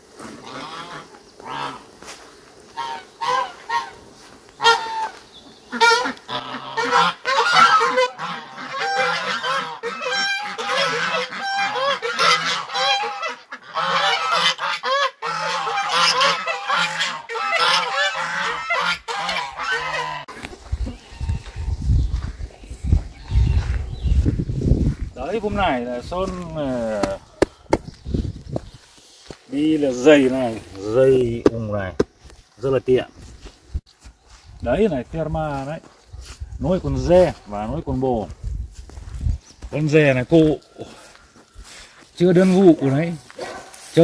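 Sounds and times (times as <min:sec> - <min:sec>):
geese honking: 0:00.2 - 0:02.0, 0:02.6 - 0:21.7, 0:24.9 - 0:27.9.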